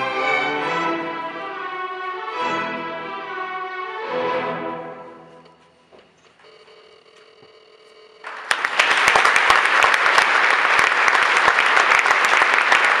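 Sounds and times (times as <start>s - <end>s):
audience applauding: 8.2s - 13.0s.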